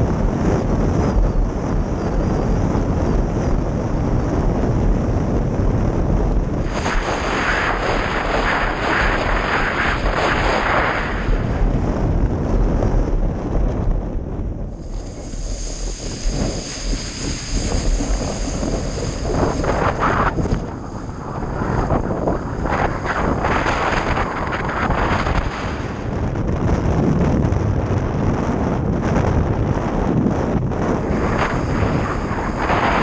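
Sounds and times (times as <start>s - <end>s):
wind buffeting microphone: 0.0s - 33.0s
water rushing and spraying: 14.8s - 26.0s, 31.0s - 33.0s.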